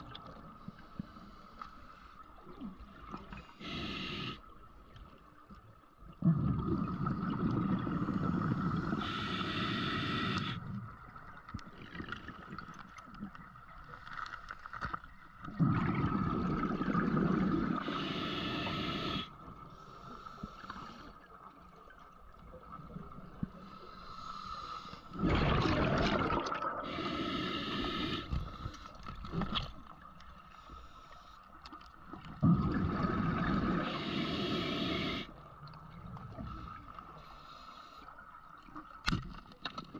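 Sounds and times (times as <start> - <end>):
diver exhaling bubbles through regulator: 6.2 - 10.6, 15.5 - 19.3, 25.2 - 28.3, 32.4 - 35.3.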